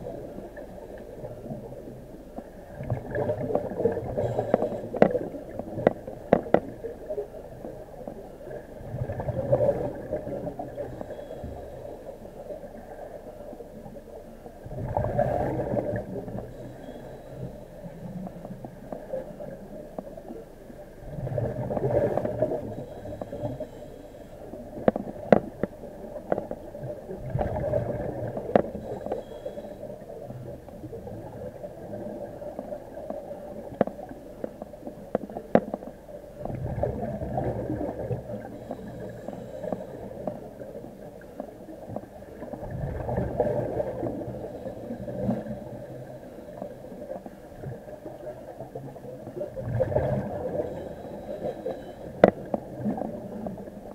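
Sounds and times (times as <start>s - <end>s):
bubbling: 1.2s - 11.2s, 14.6s - 17.3s, 21.0s - 23.5s, 24.7s - 29.1s, 30.5s - 53.9s
diver breathing underwater: 3.1s - 6.8s, 21.4s - 25.6s, 27.4s - 30.1s, 36.8s - 40.9s, 42.7s - 47.3s, 49.8s - 53.5s.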